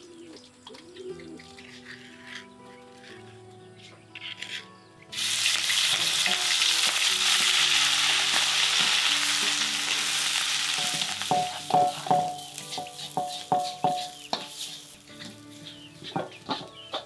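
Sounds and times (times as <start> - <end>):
paste sizzling in hot oil: 5.1 - 16.2
metal spatula clinking against wok: 10.8 - 17.0.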